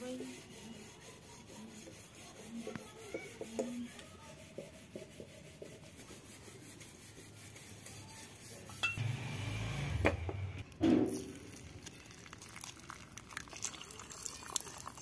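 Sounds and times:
metal spoon scraping steel dishes: 8.8 - 9.0.

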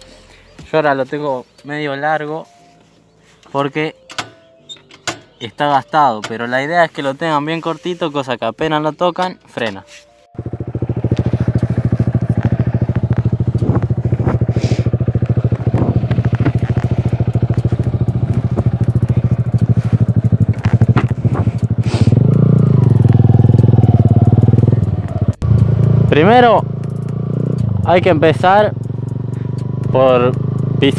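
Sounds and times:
motorcycle engine revving: 10.4 - 30.9.

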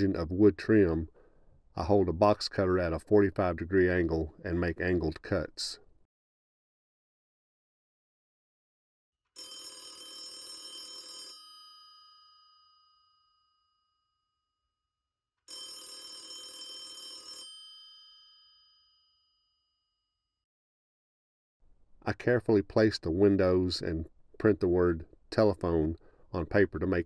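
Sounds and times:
telephone bell ringing: 9.4 - 13.8, 15.5 - 19.5.

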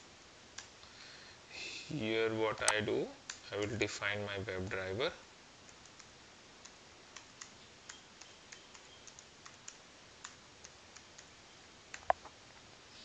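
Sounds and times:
typing on computer keyboard: 5.7 - 11.3.

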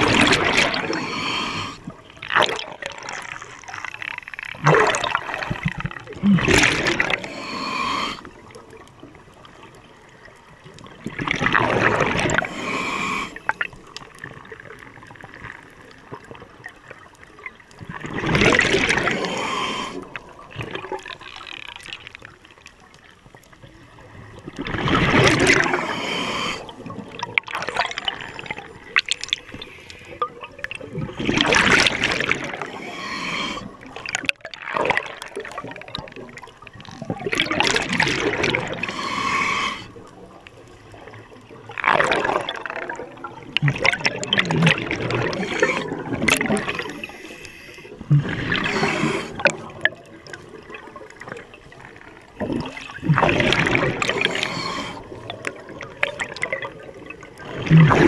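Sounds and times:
diver breathing through regulator: 0.0 - 1.9, 6.4 - 8.3, 12.2 - 13.6, 19.0 - 20.2, 25.4 - 26.8, 31.9 - 33.9, 38.7 - 40.0, 45.1 - 49.7, 53.5 - 55.3
bubbles rushing and gurgling: 0.0 - 22.8, 23.8 - 58.0.

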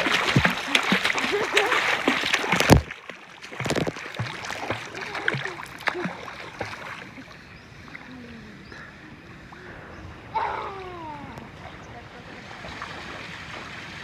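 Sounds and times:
pool water splashing: 0.0 - 14.0
water gently lapping: 0.0 - 14.0
child calling out: 10.4 - 11.4.

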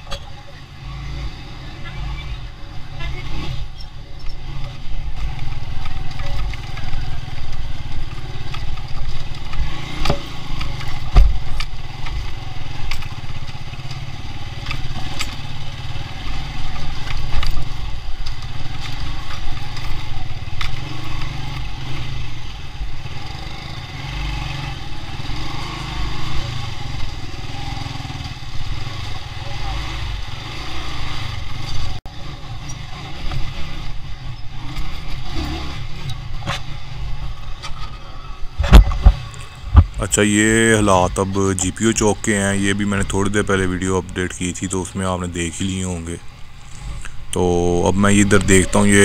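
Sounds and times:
motorcycle engine running: 0.0 - 37.7
bike knocking and rattling: 3.7 - 21.8, 34.2 - 40.0.

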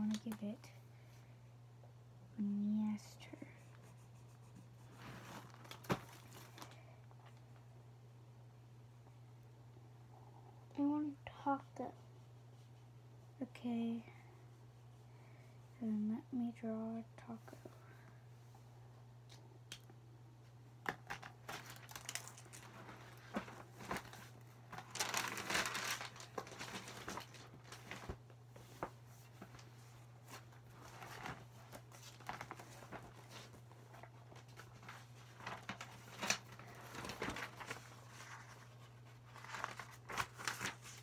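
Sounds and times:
paper rustling and crinkling: 4.5 - 7.6, 21.1 - 41.0.

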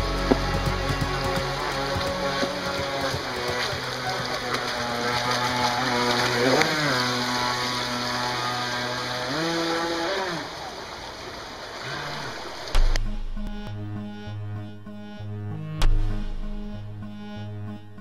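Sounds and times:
rushing water: 0.0 - 13.4
model boat motor droning: 0.0 - 18.0
sharp thump: 12.7 - 14.0, 15.7 - 16.6.

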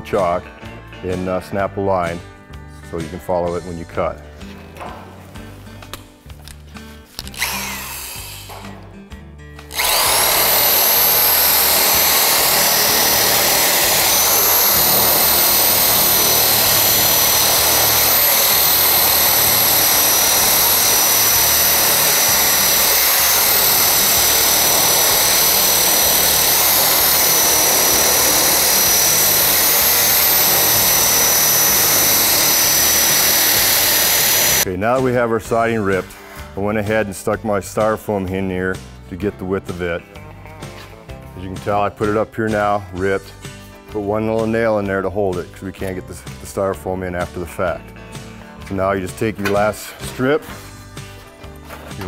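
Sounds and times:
background music: 0.0 - 52.0
power tool cutting steel: 7.2 - 8.7, 9.7 - 34.7.

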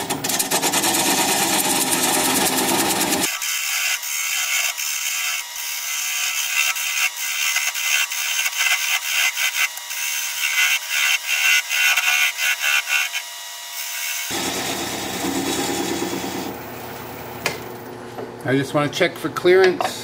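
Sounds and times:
gouge scraping wood on lathe: 0.2 - 13.3, 14.3 - 16.5
lathe running: 0.2 - 17.2.

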